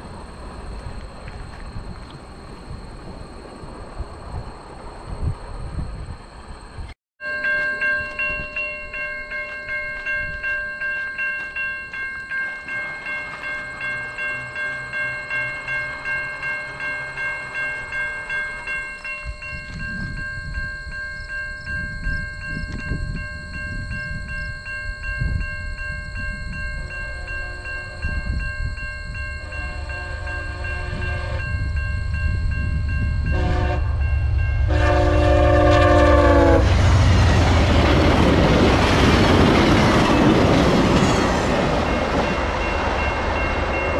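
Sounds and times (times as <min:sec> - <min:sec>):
wind on microphone: 0:00.0 - 0:07.0, 0:18.8 - 0:43.9
level-crossing warning bells: 0:00.0 - 0:43.9
train rumble: 0:00.0 - 0:43.9
train horn: 0:26.9 - 0:28.4, 0:29.4 - 0:31.8, 0:33.2 - 0:37.2.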